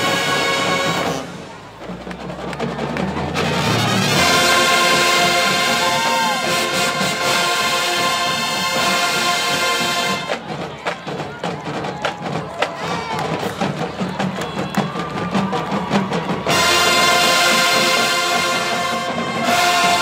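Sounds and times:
marching band brass chord: 0.0 - 1.6, 3.2 - 10.4, 16.5 - 20.0.

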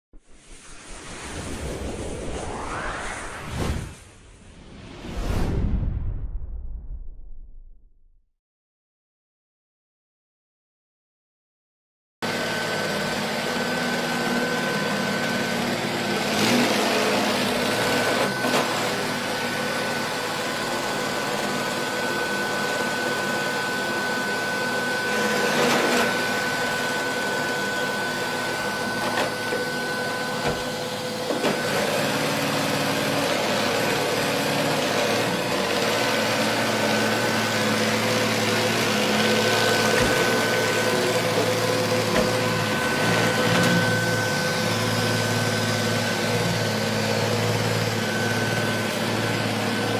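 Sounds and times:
robot vacuum whirring: 12.4 - 49.9.

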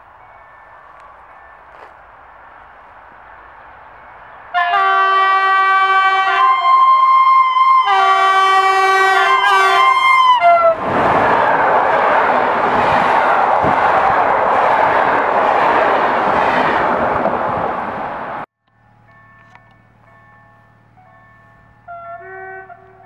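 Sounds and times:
locomotive horn blasts: 4.5 - 10.8, 21.9 - 23.0
train coaches rushing by: 8.7 - 23.0.

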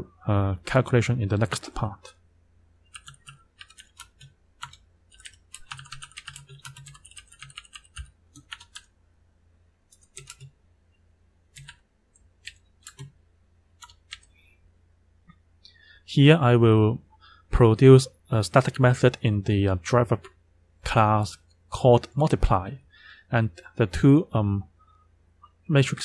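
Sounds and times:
computer keyboard typing: 2.9 - 8.9, 9.9 - 10.5, 11.5 - 13.2, 13.8 - 14.3.

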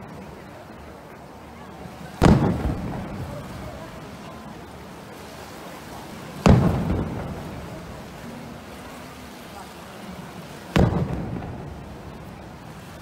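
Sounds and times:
firework shells bursting: 2.2 - 4.0, 6.4 - 8.1, 10.7 - 13.0
rumbling echo: 2.2 - 4.0, 6.5 - 8.3, 10.8 - 12.9.

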